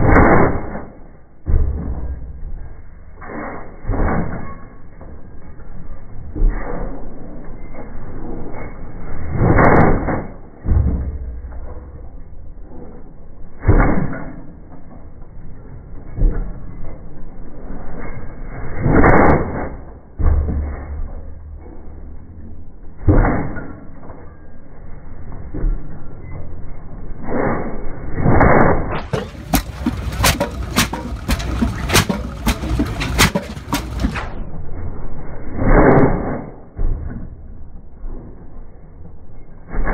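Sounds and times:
low rumble: 0.0s - 39.9s
rammer firing bang: 28.3s - 34.4s.

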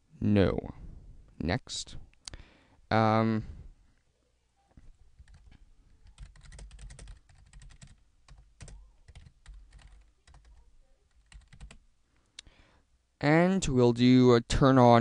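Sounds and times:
faint keyboard typing: 4.7s - 11.8s.

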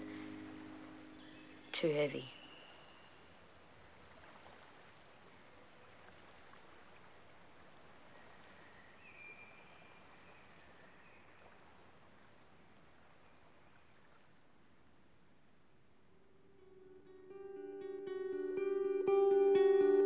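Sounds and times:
gently moving water hiss: 0.0s - 14.1s.

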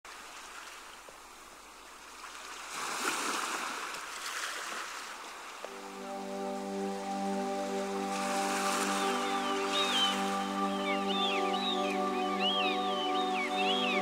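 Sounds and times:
ocean surf washing up beach: 2.0s - 14.0s
music with held notes: 5.7s - 14.0s.

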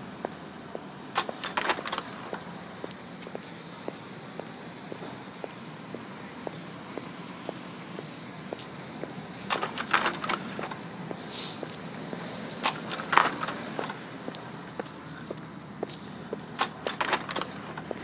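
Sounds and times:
footsteps walking: 0.2s - 12.3s, 13.6s - 18.0s
clattering noises: 1.1s - 2.5s, 9.0s - 10.8s, 11.6s - 18.0s.

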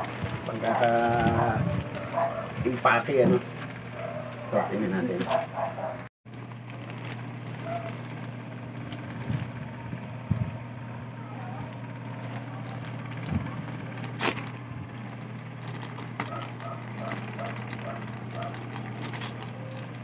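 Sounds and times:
plastic pouch rustling and crinkling: 0.0s - 3.4s, 6.5s - 9.8s, 12.1s - 20.0s
steady low hum: 0.0s - 20.0s.

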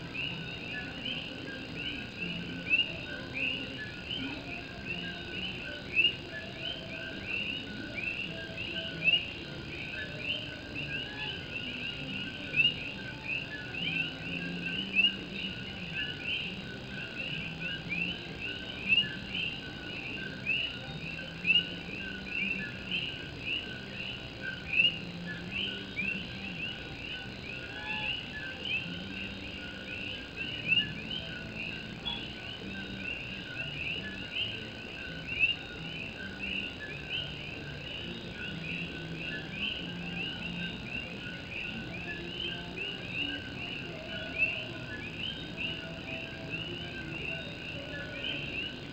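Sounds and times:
chorus of frogs calling: 0.0s - 48.9s.

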